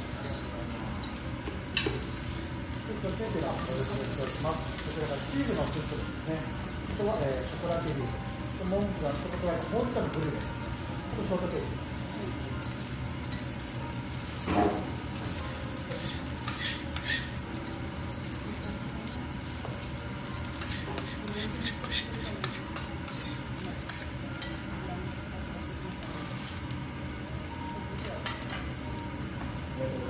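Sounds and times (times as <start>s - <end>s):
meat sizzling on a griddle: 0.0s - 30.0s
metal spatula scraping a plate: 15.9s - 17.4s, 20.6s - 24.1s.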